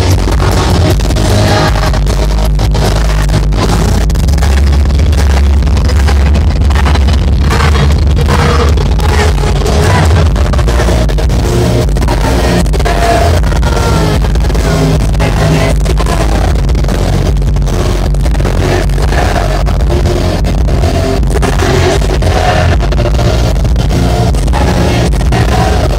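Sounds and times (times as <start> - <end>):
drums: 0.0 - 25.9
rock band playing live: 0.0 - 25.9
man singing: 7.5 - 11.2.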